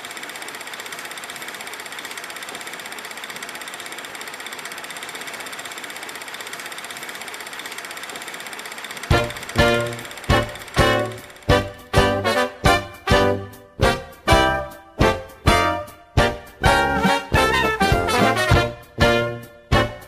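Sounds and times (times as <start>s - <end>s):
fast mechanical rattle: 0.0s - 12.4s
brass band music hit: 9.1s - 20.0s.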